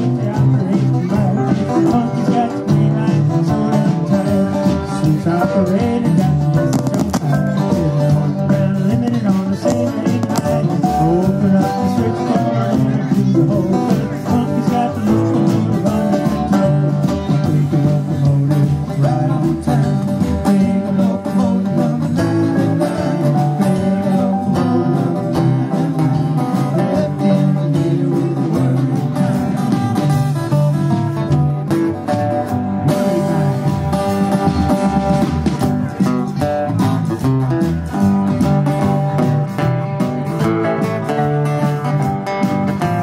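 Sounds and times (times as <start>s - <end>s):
drums keeping a steady beat: 0.0s - 43.0s
electric bass: 0.0s - 43.0s
strummed acoustic guitar: 0.0s - 43.0s.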